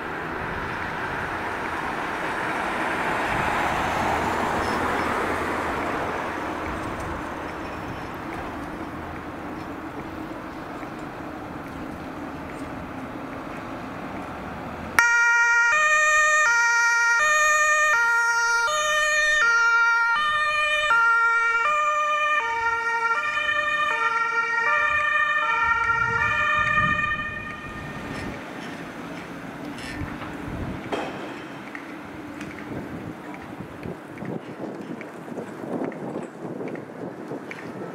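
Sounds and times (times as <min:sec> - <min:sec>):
vehicle driving on road: 0:00.0 - 0:37.9
two-tone emergency siren: 0:15.0 - 0:28.3.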